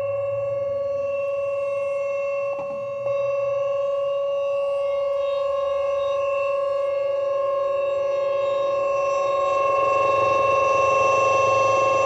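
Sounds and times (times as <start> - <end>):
steady siren tone: 0.0 - 12.0.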